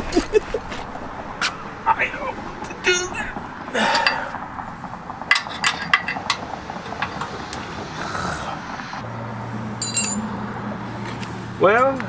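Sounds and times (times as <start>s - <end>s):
metal tools clicking on steel: 9.8s - 10.3s
ringing metal clink: 9.8s - 10.4s.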